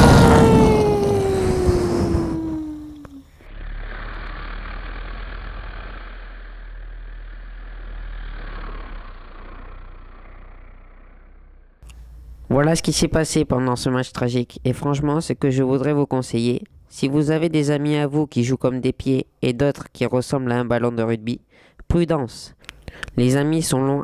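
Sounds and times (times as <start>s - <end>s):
explosion burst: 0.0s - 3.0s
falling whistle-like tone: 0.0s - 3.8s
low hum: 0.0s - 13.7s.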